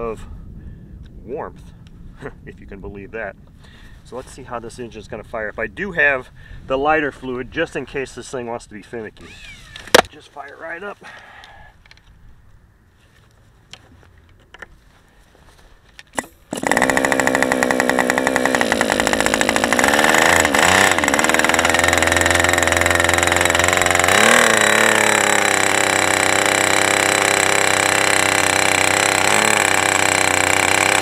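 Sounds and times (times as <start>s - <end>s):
model airplane engine running: 16.2s - 31.0s.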